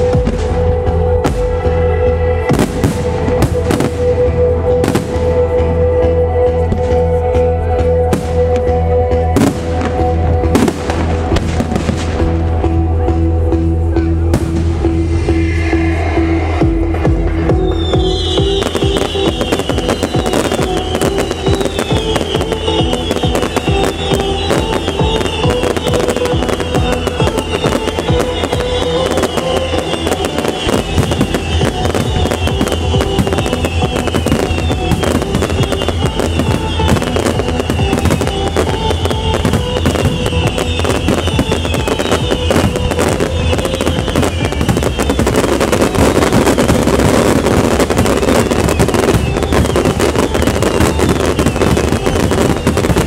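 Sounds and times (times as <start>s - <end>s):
trance music: 0.0s - 53.0s
firework shells bursting and crackling: 17.7s - 53.0s.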